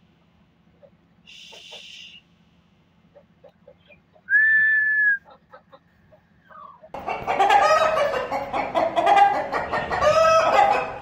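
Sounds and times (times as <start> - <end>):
chickens calling harshly: 0.7 - 2.2, 3.0 - 4.5, 5.1 - 11.0.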